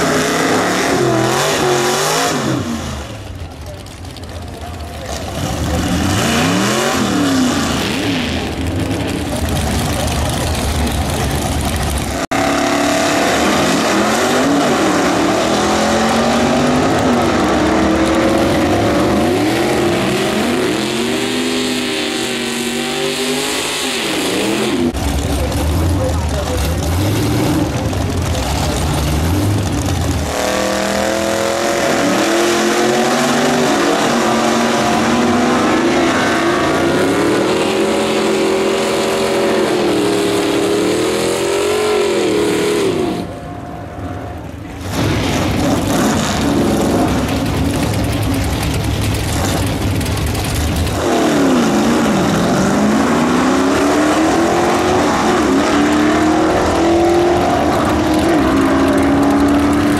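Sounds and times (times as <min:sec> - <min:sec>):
drag car engines at full throttle: 0:00.0 - 0:59.9.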